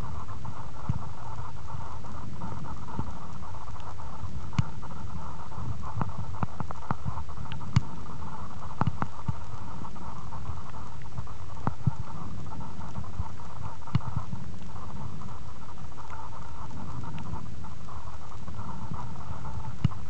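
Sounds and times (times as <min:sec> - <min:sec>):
muffled underwater rumble and hiss: 0:00.0 - 0:20.0
small clicks and taps: 0:03.7 - 0:04.7, 0:06.0 - 0:08.0, 0:08.6 - 0:09.6.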